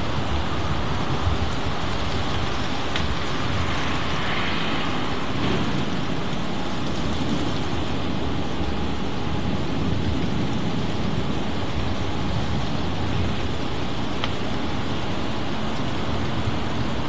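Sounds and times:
low thunder rumble: 0.0 - 14.6
rain: 0.0 - 17.0
wind: 0.0 - 17.0.

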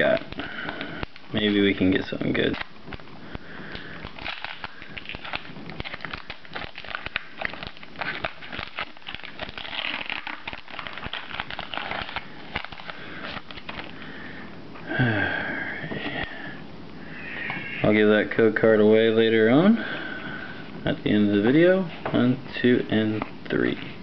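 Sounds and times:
foil wrapper crinkling: 0.0 - 14.1.

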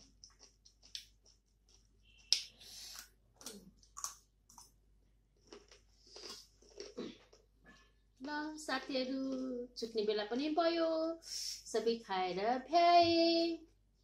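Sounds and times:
person chewing food: 0.0 - 8.4.

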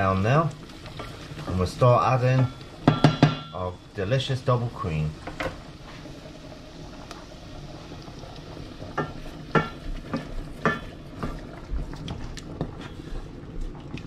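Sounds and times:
onions sizzling in a pot: 0.0 - 14.0
spoon knocking and scraping pot: 2.4 - 3.5, 8.9 - 11.4.

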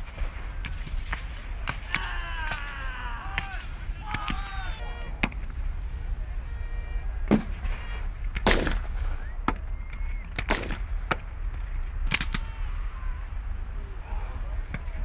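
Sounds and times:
heavy rumbling gun reports: 0.0 - 15.0
black-powder gunshots: 7.2 - 9.7, 10.3 - 11.3.

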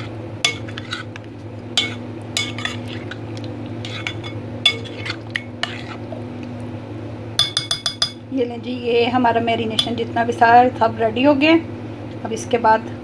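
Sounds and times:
spoon stirring marinade: 0.0 - 6.2
spoon clinking against glass: 7.4 - 8.2.

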